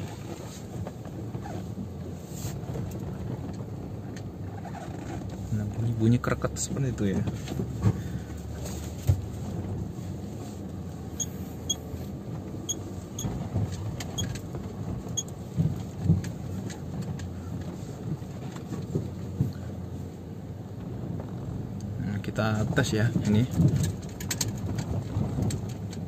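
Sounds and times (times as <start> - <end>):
low road rumble: 0.0 - 26.0
car body creaking ticks: 12.4 - 17.7, 23.2 - 26.0.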